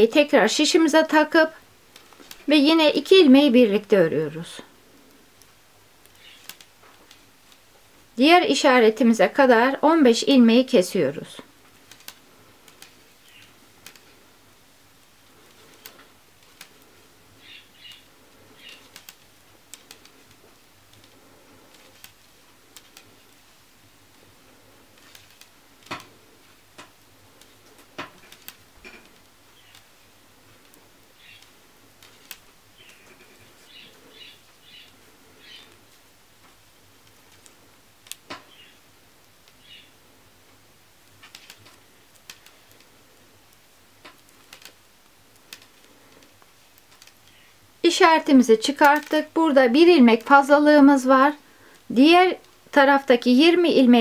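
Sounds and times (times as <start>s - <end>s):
knitting needles clicking: 1.9s - 2.6s, 4.9s - 7.7s, 11.4s - 14.4s, 15.0s - 39.7s, 41.0s - 47.4s, 48.2s - 49.4s.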